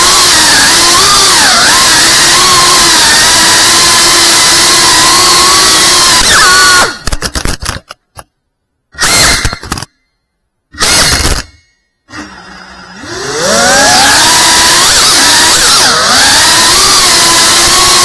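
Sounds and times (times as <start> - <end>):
quadcopter motor whine: 0.0 - 7.0, 12.1 - 18.0
quadcopter motors stuttering: 0.0 - 7.0, 10.8 - 18.0.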